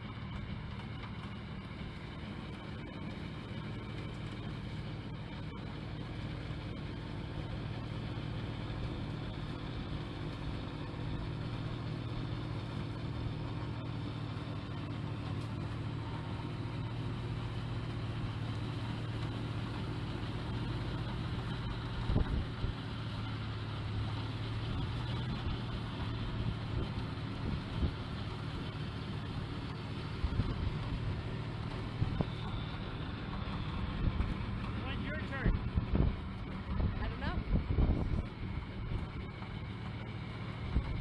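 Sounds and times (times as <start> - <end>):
snowblower engine running: 0.0 - 41.0.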